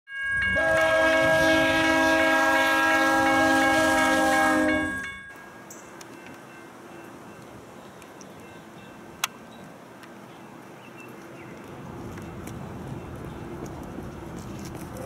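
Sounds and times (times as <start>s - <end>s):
locomotive air horn blast: 0.5s - 5.0s.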